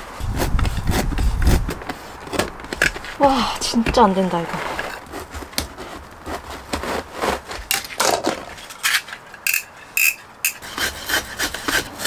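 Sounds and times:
knife scraping through rubber mat: 0.2 - 9.2.

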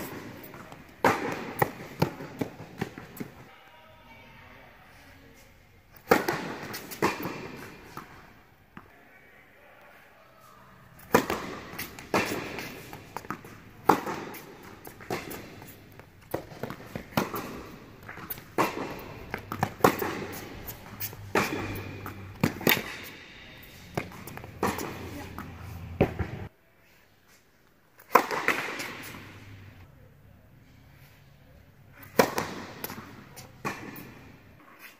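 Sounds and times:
tennis balls bouncing on hard court: 0.0 - 3.5, 6.0 - 8.9, 11.0 - 26.5, 28.0 - 29.7, 32.0 - 34.5
tennis balls struck by rackets: 0.0 - 3.5, 6.0 - 8.9, 10.9 - 26.5, 28.0 - 29.8, 32.0 - 34.6.

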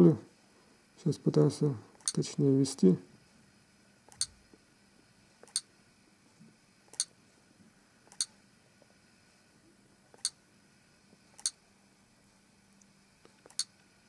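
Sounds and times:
on-screen keyboard clicks: 13.4 - 13.7.

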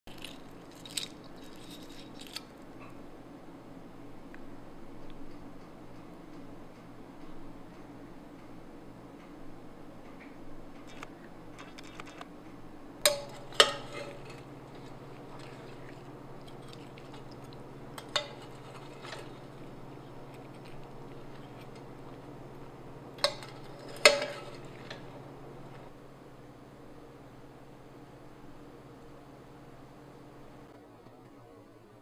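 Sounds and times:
metal spoon clinking ceramic pot: 13.1 - 22.2, 23.2 - 25.1.

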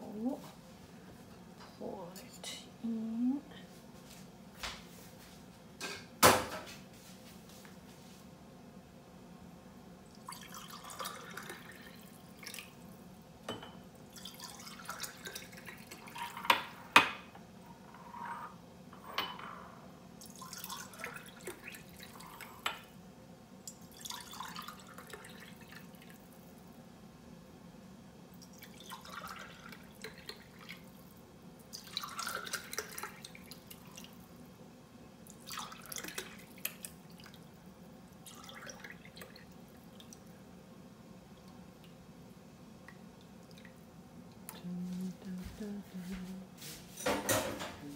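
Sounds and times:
milk pouring into containers: 10.1 - 13.0, 14.0 - 16.5, 20.2 - 22.6, 23.8 - 26.7, 28.4 - 34.3, 35.2 - 40.4.

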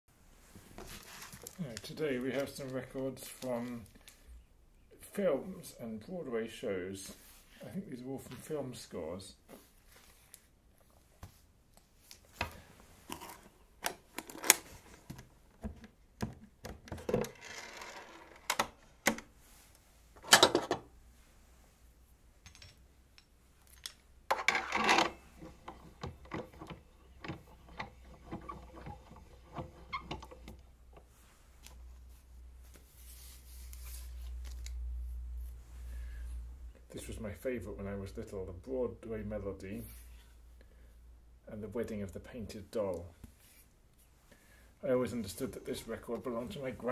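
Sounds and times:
rustling scrapes: 0.4 - 2.6, 31.1 - 34.7
clicks and knocks of handling: 22.4 - 31.8.

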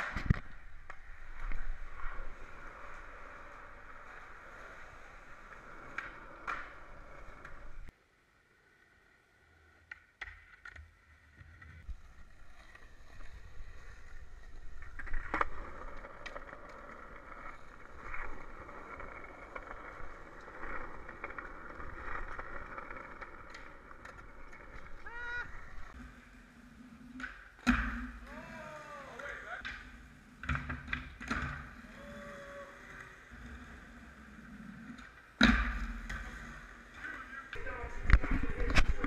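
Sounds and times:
skateboard wheels rolling on asphalt: 0.0 - 39.0
skateboard clacks: 3.0 - 7.8.

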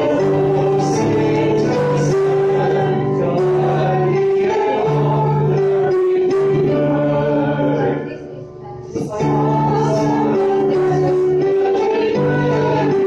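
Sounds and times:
mixed choir singing a hymn: 0.0 - 13.0.

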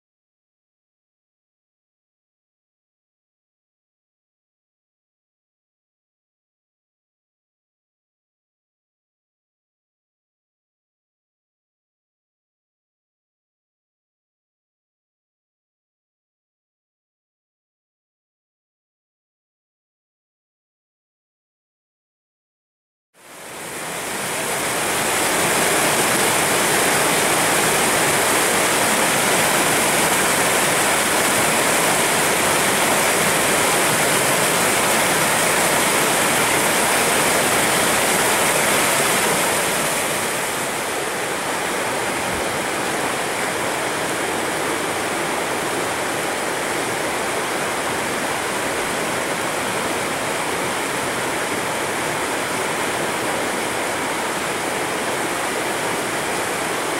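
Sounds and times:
whitewater rushing over rocks: 23.2 - 56.9.

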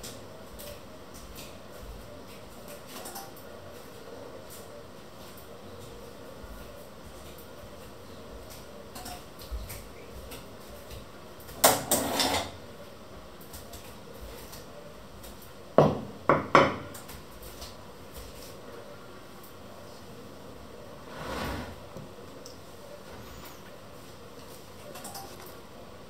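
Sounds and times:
utensils clattering on wood: 11.7 - 12.6.

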